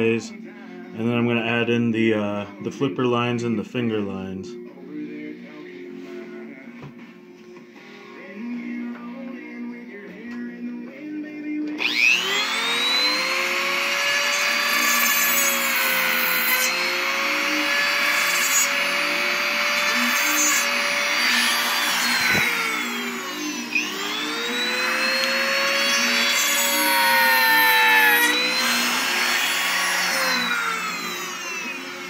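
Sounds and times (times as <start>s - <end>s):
rotary carving tool whine: 11.8s - 32.0s.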